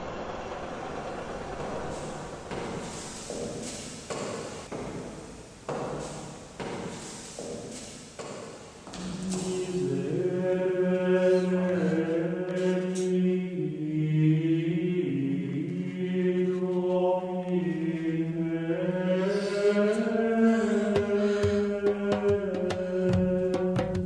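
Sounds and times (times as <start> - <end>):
steady low drone: 8.9 - 16.2
voices chanting long notes: 8.9 - 21.3.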